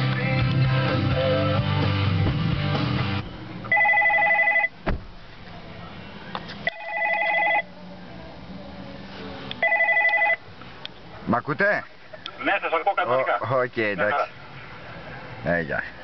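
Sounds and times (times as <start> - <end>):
guitar music on car stereo: 0.0 - 4.9
warbling electronic ringtone: 3.7 - 4.7, 6.7 - 7.6, 9.6 - 10.4.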